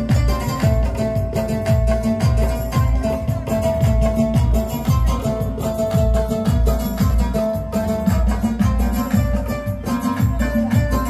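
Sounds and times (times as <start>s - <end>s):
background music with beat: 0.0s - 11.0s.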